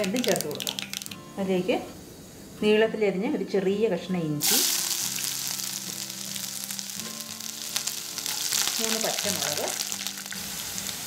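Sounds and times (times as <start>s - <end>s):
spices sizzling in hot oil: 0.0s - 2.3s, 4.4s - 11.0s.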